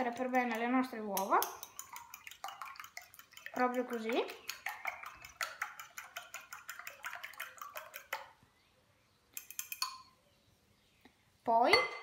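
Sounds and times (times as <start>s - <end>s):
fork clicking against glass bowl: 1.2s - 8.2s, 9.4s - 10.1s.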